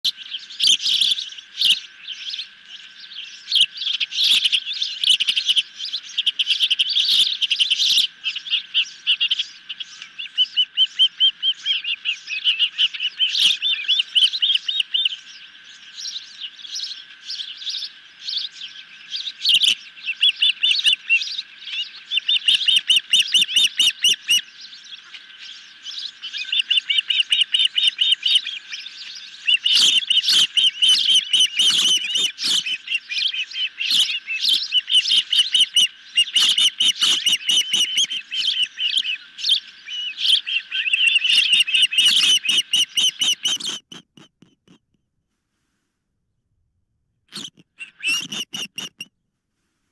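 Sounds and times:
ospreys shrill chirping: 19.4s - 24.4s, 26.3s - 44.8s, 47.3s - 49.1s.

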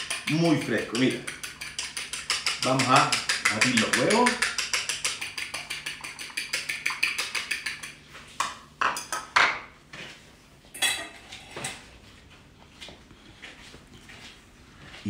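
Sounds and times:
utensils clinking against bowls: 0.0s - 8.0s, 8.8s - 9.5s, 10.7s - 11.8s
fork beating eggs in bowl: 0.0s - 9.4s.

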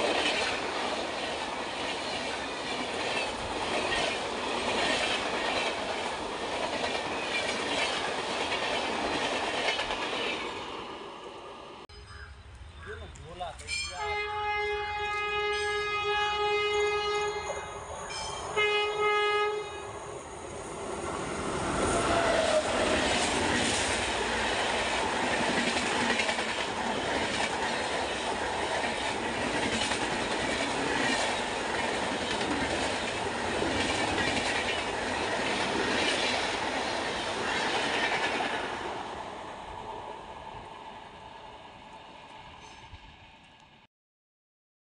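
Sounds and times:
wheels clacking over rail joints: 0.0s - 10.8s, 21.0s - 38.8s
rumble of passing train coaches: 0.0s - 43.8s
locomotive horn: 13.9s - 17.7s, 18.5s - 20.0s.

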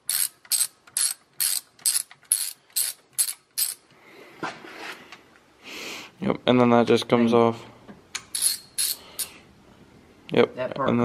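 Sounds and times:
socket ratchet clicking: 0.1s - 3.8s.

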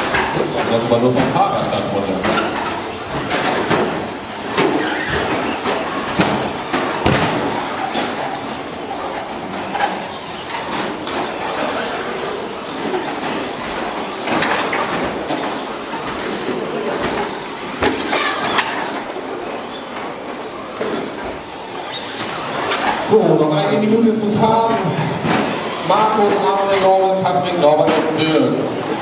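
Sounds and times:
toy truck motors and tyres running: 2.0s - 23.2s, 25.3s - 27.0s
sharp knocks of trucks colliding: 6.1s - 7.8s.

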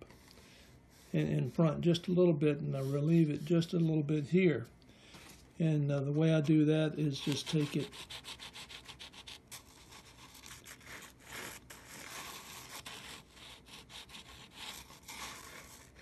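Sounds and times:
sanding block scraping wood: 7.1s - 16.0s.

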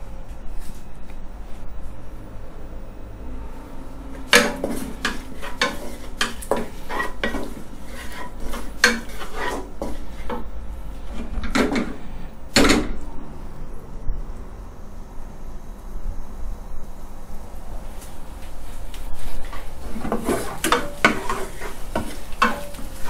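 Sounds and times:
chilies and garlic frying in oil: 4.1s - 12.7s, 17.9s - 23.0s
wooden spatula scraping a wok: 4.2s - 12.3s, 18.6s - 23.0s.

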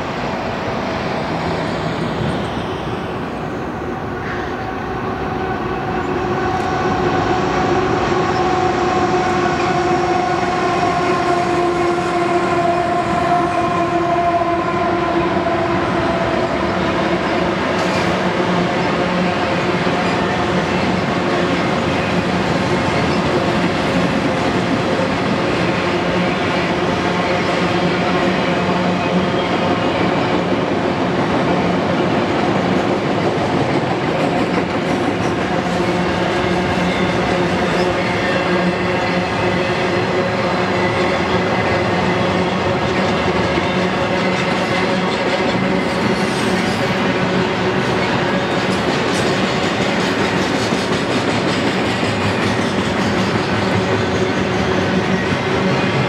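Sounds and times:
train wheels rumbling and rattling: 15.1s - 56.0s.

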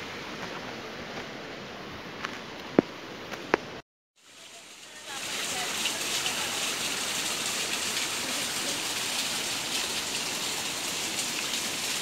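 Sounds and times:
waterfall trickling onto rocks: 4.2s - 12.0s.

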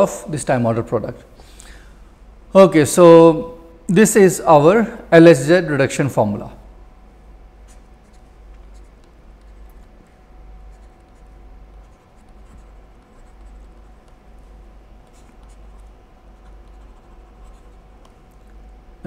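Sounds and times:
stylus scratching on tablet: 7.6s - 18.5s.

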